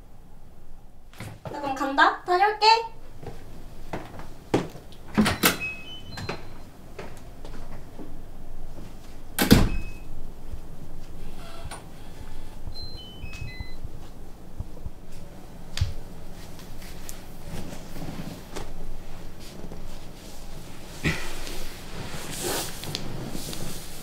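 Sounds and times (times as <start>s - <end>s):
electronic door lock beeps: 5.2s - 6.7s, 9.4s - 10.1s, 12.8s - 13.8s
door shutting with a knock: 9.4s - 9.8s.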